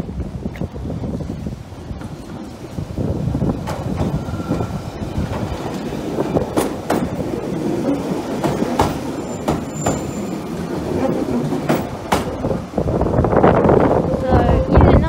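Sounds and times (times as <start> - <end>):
train low rumble: 0.0 - 15.0
wheels clacking over rail joints: 1.6 - 12.9
high wheel squeal: 4.0 - 6.0, 7.8 - 11.8.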